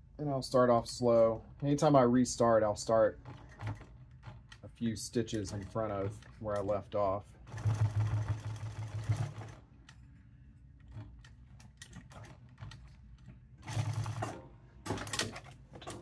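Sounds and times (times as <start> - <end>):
sewing machine stitching: 7.4 - 9.6, 13.6 - 15.5.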